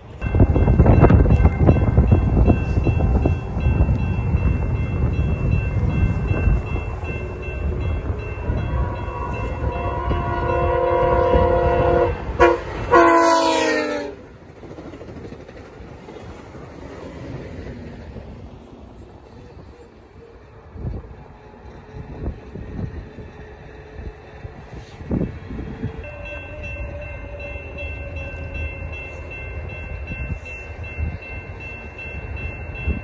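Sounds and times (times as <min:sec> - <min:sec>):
train rumble: 0:00.0 - 0:33.0
train horn: 0:07.1 - 0:14.3, 0:24.0 - 0:30.8.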